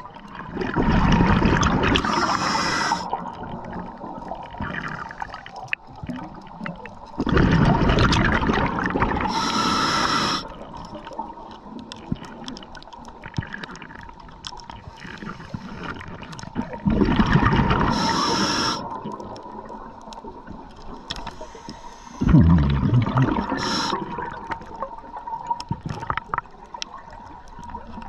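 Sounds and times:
rumble of exhaled bubbles: 0:00.0 - 0:09.5, 0:10.5 - 0:28.0
hissing regulator inhalation: 0:02.0 - 0:03.2, 0:09.2 - 0:10.6, 0:17.8 - 0:19.0, 0:21.1 - 0:24.1.

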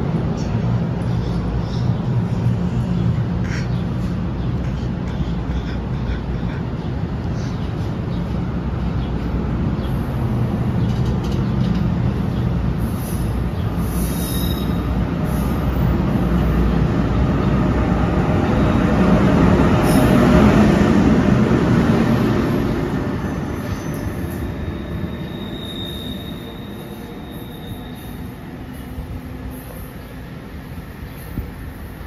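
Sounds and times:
train passing: 0:00.0 - 0:32.0
faint high squeal: 0:13.9 - 0:14.9, 0:23.5 - 0:28.4.

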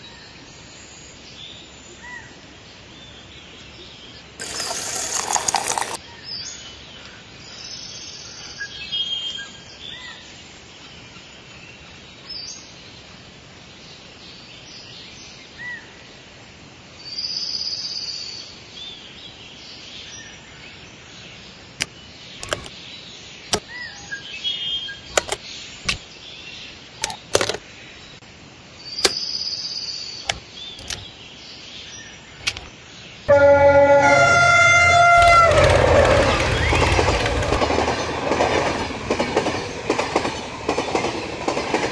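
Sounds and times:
sharp clicks: 0:21.8 - 0:22.7, 0:25.1 - 0:26.0, 0:27.0 - 0:27.6, 0:30.3 - 0:31.1, 0:32.4 - 0:32.7.

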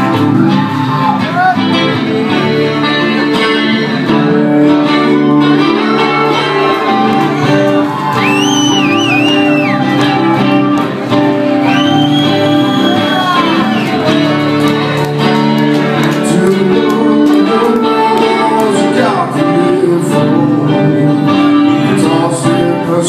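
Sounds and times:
high wavering audience calls: 0:00.0 - 0:02.0, 0:04.7 - 0:16.1
acoustic guitars playing: 0:00.0 - 0:23.0.

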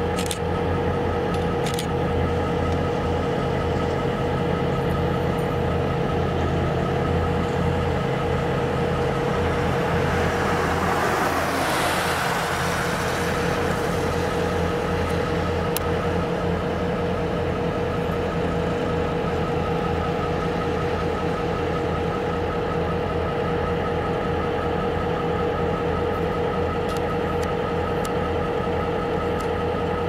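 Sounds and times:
diesel locomotive idling: 0:00.0 - 0:30.0
road vehicle passing: 0:07.8 - 0:16.5.

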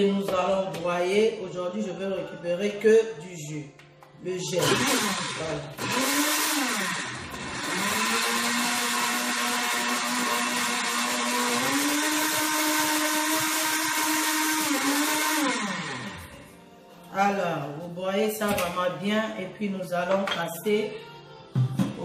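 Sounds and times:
blender motor running: 0:04.6 - 0:16.4.

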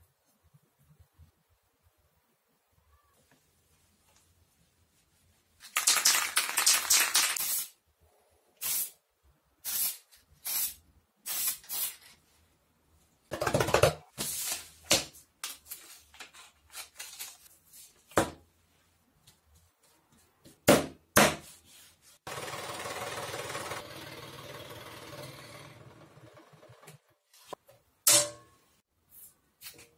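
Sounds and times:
aerosol spray can hissing: 0:08.6 - 0:09.0, 0:09.6 - 0:12.0
paper rustling: 0:14.2 - 0:18.0.

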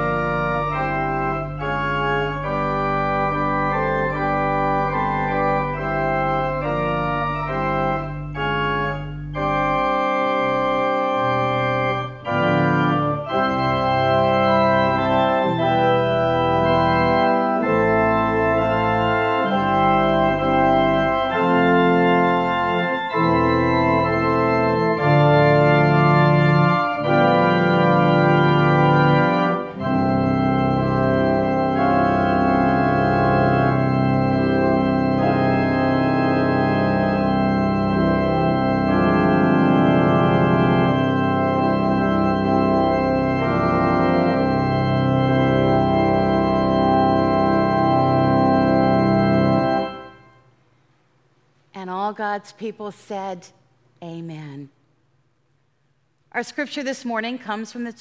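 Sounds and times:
organ chords: 0:00.0 - 0:53.0.

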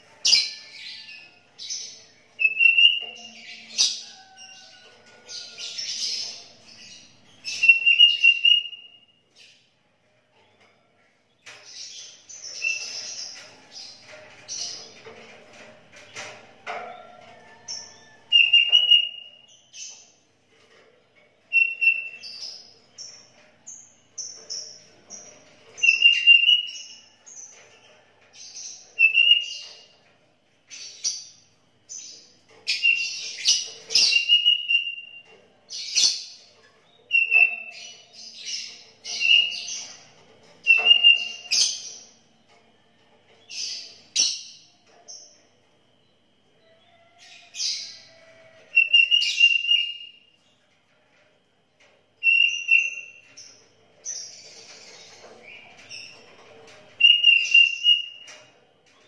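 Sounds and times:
bird singing whistled phrases: 0:02.4 - 0:03.0, 0:07.6 - 0:09.0, 0:21.5 - 0:22.1, 0:52.2 - 0:52.8.

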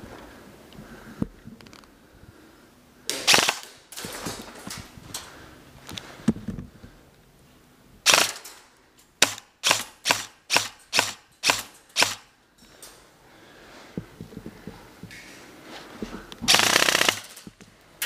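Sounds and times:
airsoft gun shots: 0:03.1 - 0:04.4, 0:08.1 - 0:08.4, 0:09.2 - 0:12.3, 0:16.5 - 0:17.4.

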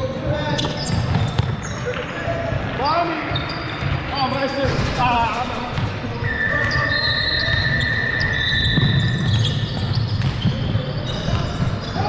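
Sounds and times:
basketball bouncing: 0:00.2 - 0:04.9, 0:08.2 - 0:12.0.

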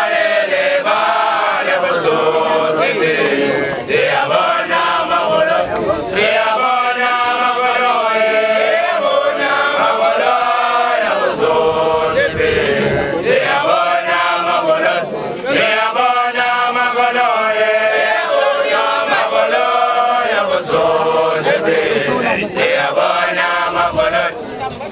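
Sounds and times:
male voices chanting together: 0:00.0 - 0:24.5.

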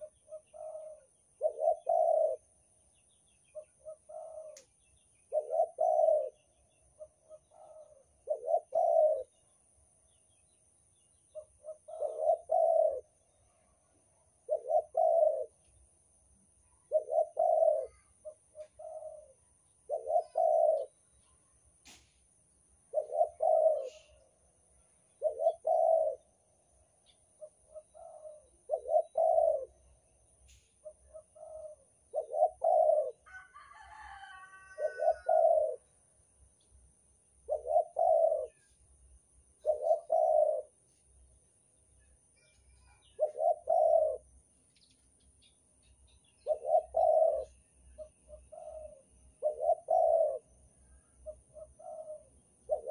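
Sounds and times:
dove cooing: 0:00.0 - 0:02.6, 0:03.5 - 0:09.4, 0:11.3 - 0:13.2, 0:14.4 - 0:15.7, 0:16.8 - 0:21.0, 0:22.9 - 0:24.3, 0:25.2 - 0:26.4, 0:27.3 - 0:35.9, 0:37.4 - 0:38.8, 0:39.6 - 0:41.2, 0:42.4 - 0:45.0, 0:46.4 - 0:52.9.

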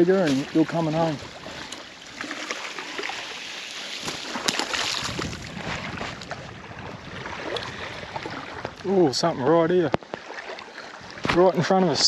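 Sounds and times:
water lapping on shore: 0:00.0 - 0:12.0
wind on microphone: 0:04.0 - 0:10.0.

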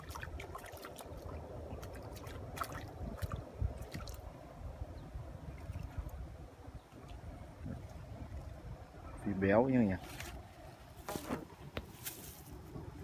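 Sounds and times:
fish splashing and thrashing: 0:00.0 - 0:04.3.

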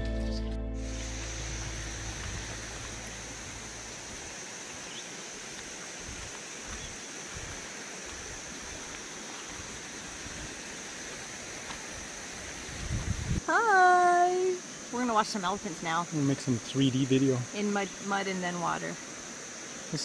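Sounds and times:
high-pitched drone: 0:00.7 - 0:04.0
steady river hiss: 0:00.8 - 0:20.0.

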